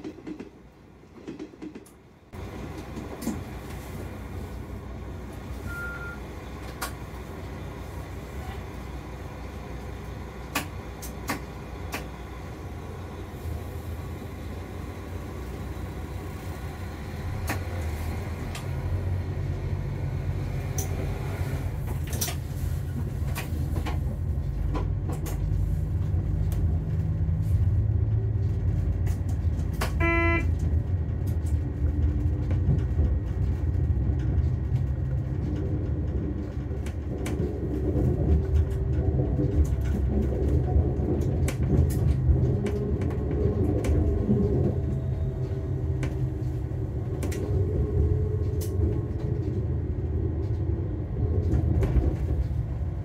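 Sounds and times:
diesel train rumble: 0:00.0 - 0:53.0
brief pitched tone: 0:05.7 - 0:06.2, 0:30.0 - 0:30.5.

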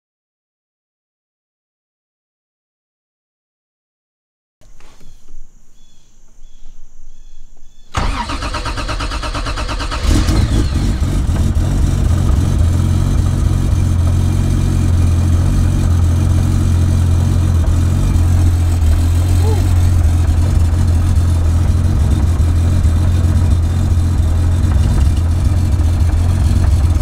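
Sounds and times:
car engine cranking and idling: 0:07.9 - 0:27.0.

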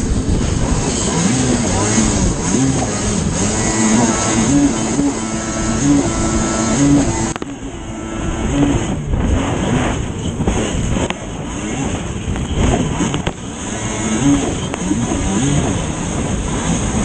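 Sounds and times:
watercraft engine running hard: 0:00.0 - 0:17.0
wind rushing: 0:00.0 - 0:17.0
water spray: 0:00.6 - 0:08.9.

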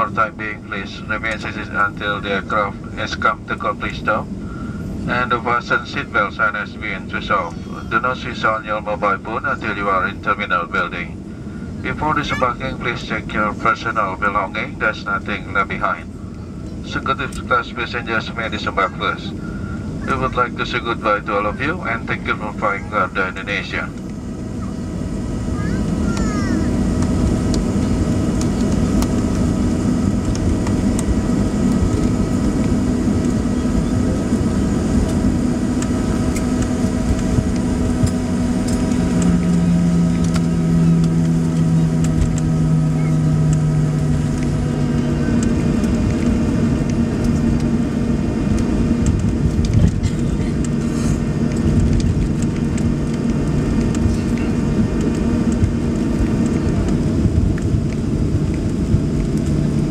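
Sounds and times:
jet engines running: 0:00.0 - 0:59.9
deep tone: 0:23.8 - 0:48.9.

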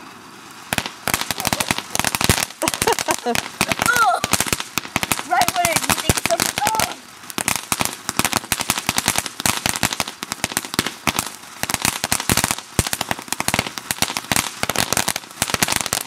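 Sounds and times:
firework crackling: 0:00.0 - 0:16.0.

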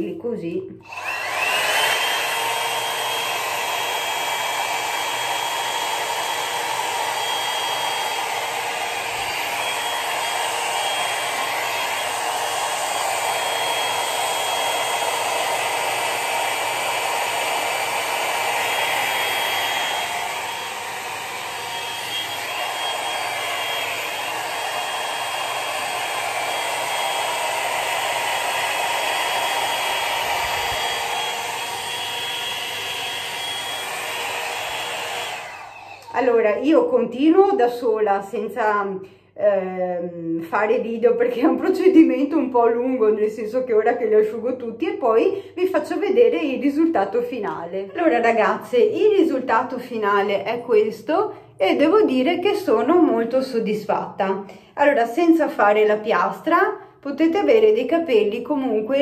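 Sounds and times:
hot-air brush motor blowing: 0:00.8 - 0:36.4.

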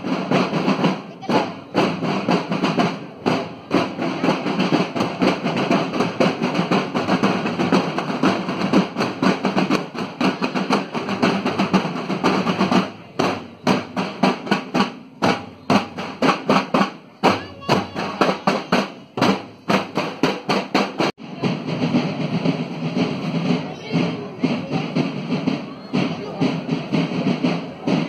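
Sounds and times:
snare and bass drums march cadence: 0:00.0 - 0:28.0.

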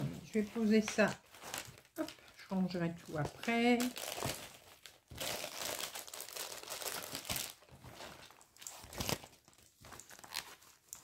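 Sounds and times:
plastic bag crinkling: 0:00.2 - 0:11.0.

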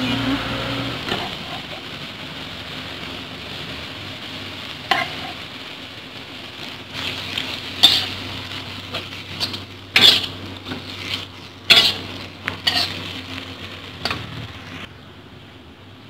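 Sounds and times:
light sizzle: 0:00.0 - 0:16.0
metal spatula scraping a wok: 0:04.8 - 0:05.5, 0:06.9 - 0:14.9.

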